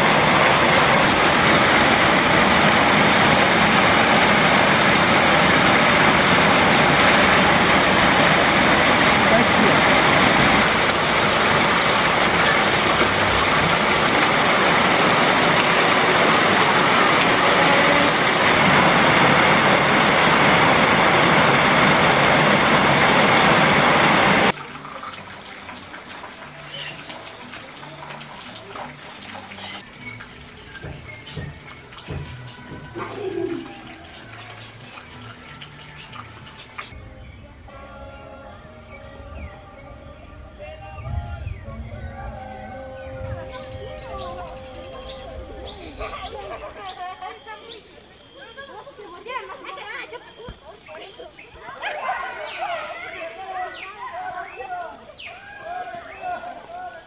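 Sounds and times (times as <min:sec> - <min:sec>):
heavy rain pouring: 0:00.0 - 0:37.0, 0:41.1 - 0:46.9.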